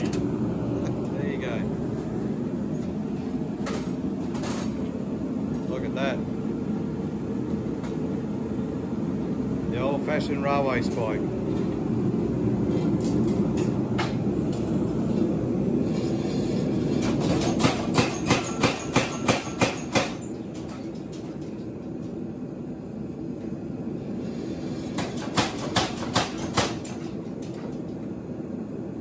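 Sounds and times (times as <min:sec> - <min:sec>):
low machine rumble: 0:00.0 - 0:17.6
power hammer metal blows: 0:17.0 - 0:20.3, 0:24.9 - 0:27.0.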